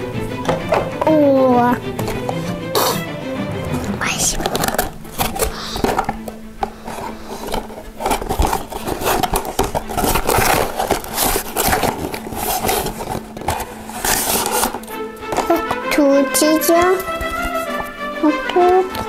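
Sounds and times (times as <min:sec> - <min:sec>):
cardboard box rustling: 0:04.0 - 0:17.9.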